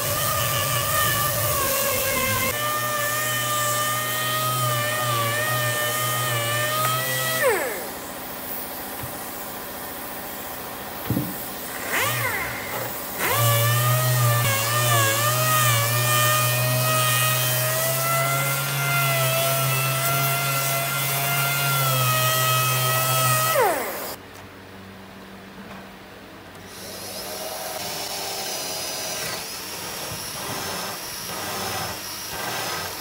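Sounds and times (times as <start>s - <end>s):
air sander whining on wood: 0.0s - 9.8s, 11.1s - 24.2s.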